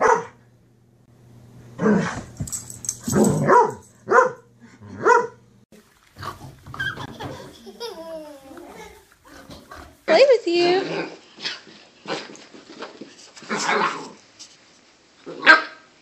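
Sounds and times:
dog barking: 0.0s - 0.4s, 3.1s - 5.4s, 15.4s - 15.9s.

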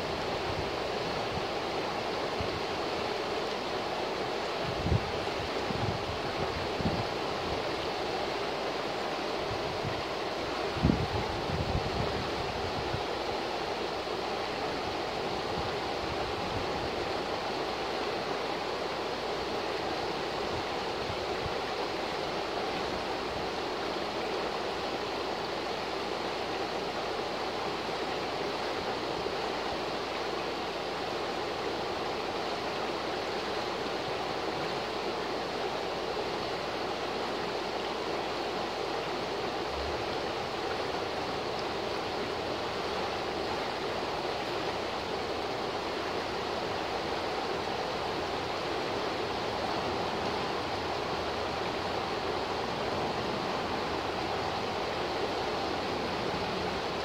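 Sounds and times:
river rushing over rocks: 0.0s - 57.0s.

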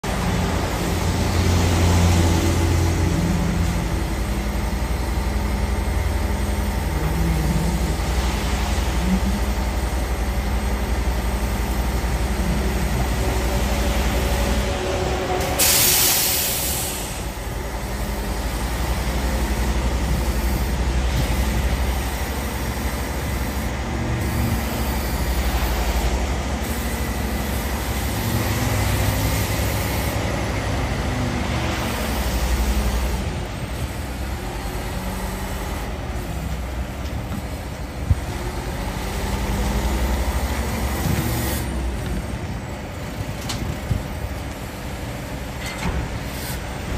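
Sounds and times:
truck engine rumbling: 0.0s - 46.9s
loud hiss: 15.4s - 19.5s.

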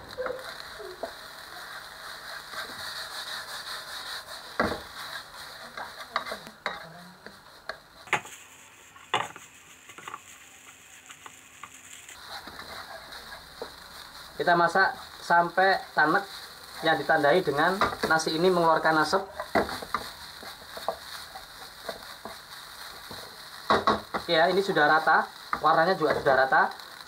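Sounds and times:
rice sizzling in a wok: 0.0s - 27.0s
spatula stirring and scraping: 0.0s - 27.0s
spatula knocking on pan: 23.7s - 24.3s.

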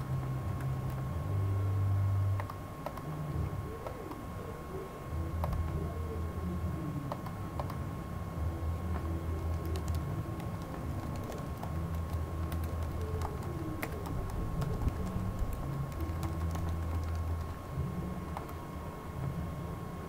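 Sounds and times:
steady low hum: 0.0s - 20.0s
keyboard typing: 0.6s - 1.1s, 2.4s - 3.1s, 5.4s - 5.9s, 7.1s - 7.8s, 9.0s - 17.7s.

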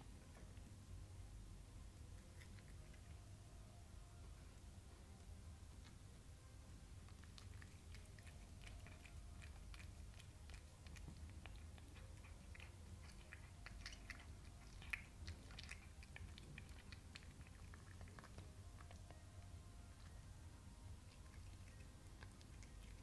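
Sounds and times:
cat chewing wet clicks: 2.2s - 3.2s, 7.0s - 20.2s, 20.9s - 23.0s.

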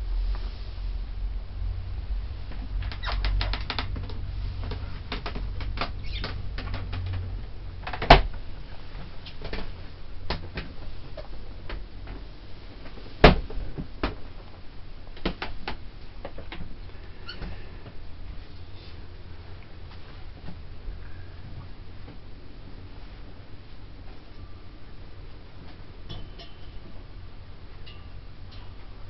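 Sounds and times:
low rumble: 0.0s - 15.2s.

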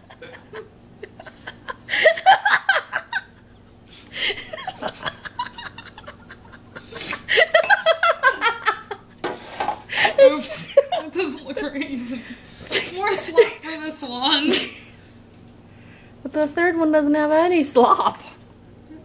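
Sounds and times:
people laughing and snickering: 0.0s - 9.2s.

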